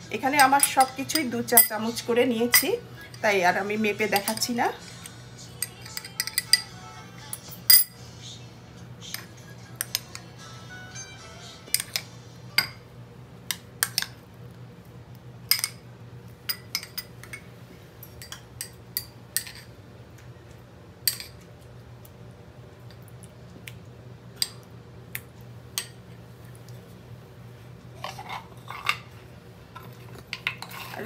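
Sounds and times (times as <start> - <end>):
metal spoons clinking glass bowls: 0.3 - 3.2, 5.6 - 6.7, 7.3 - 8.0, 16.5 - 17.5, 18.2 - 19.7, 21.1 - 21.4.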